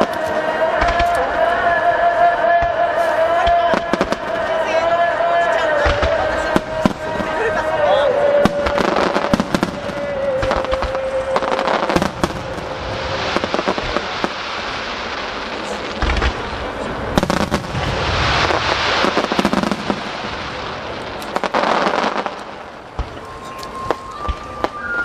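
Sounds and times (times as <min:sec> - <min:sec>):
firework bangs: 0:00.0 - 0:25.0
firework hiss and crackle: 0:08.4 - 0:25.0.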